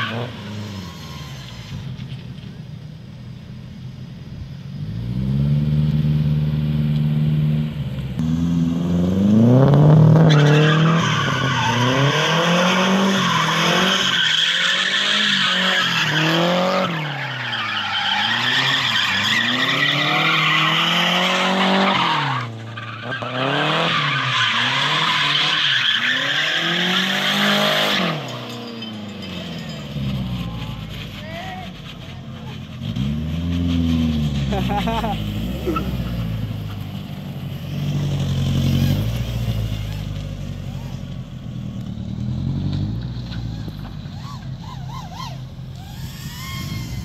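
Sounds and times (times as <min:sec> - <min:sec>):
tyres squealing and skidding: 0:00.0 - 0:02.8, 0:09.8 - 0:47.0
car engine revving: 0:00.0 - 0:47.0.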